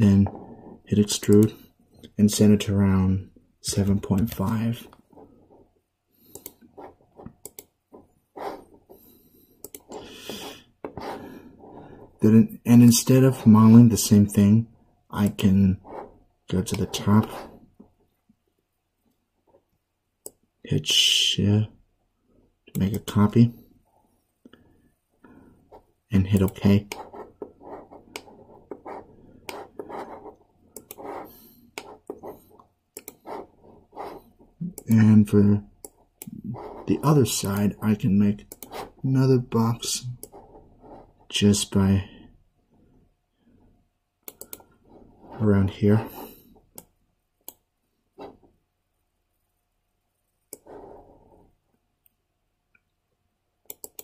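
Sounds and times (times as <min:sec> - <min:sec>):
rubbing and handling noise: 0:03.8 - 0:05.8, 0:06.6 - 0:12.4, 0:15.4 - 0:18.1, 0:26.6 - 0:34.6, 0:36.0 - 0:41.4, 0:44.6 - 0:46.8, 0:48.0 - 0:48.6, 0:50.3 - 0:51.9
computer mouse clicks: 0:06.3 - 0:08.7, 0:09.6 - 0:10.0, 0:26.3 - 0:35.1, 0:38.5 - 0:38.9, 0:44.2 - 0:44.8, 0:46.6 - 0:47.6, 0:50.5 - 0:51.2, 0:53.6 - 0:54.0
mouse and keyboard clicks: 0:53.7 - 0:54.0.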